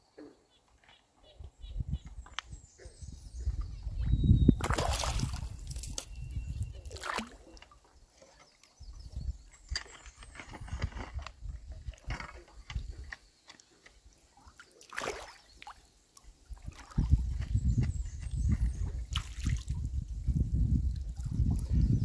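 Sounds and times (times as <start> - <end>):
water splashing around boots: 4.6 - 6.1, 6.9 - 7.8, 14.4 - 17.4.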